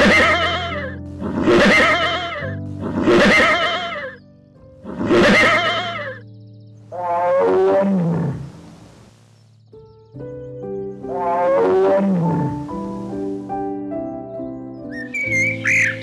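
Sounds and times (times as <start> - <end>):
horse whinnying: 0.0 - 4.2, 4.9 - 6.2
low falling animal call: 0.0 - 4.2, 4.9 - 6.2, 6.9 - 9.1, 11.1 - 12.7, 14.9 - 16.0
background music: 0.0 - 16.0.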